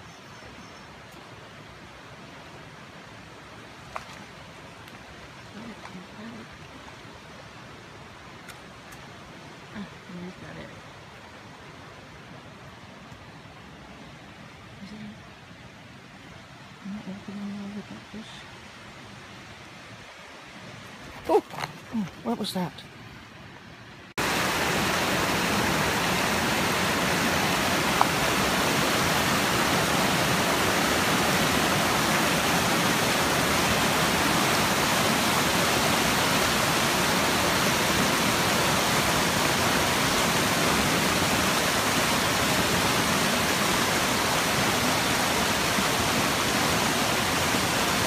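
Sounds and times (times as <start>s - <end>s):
water rushing over rocks: 1.0s - 14.0s, 24.2s - 48.0s.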